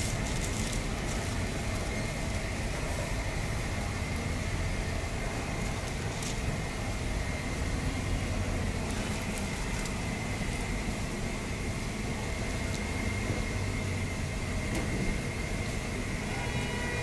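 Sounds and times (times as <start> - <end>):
street food stall rumble and hiss: 0.0 - 17.0
thin high whine: 10.1 - 17.0.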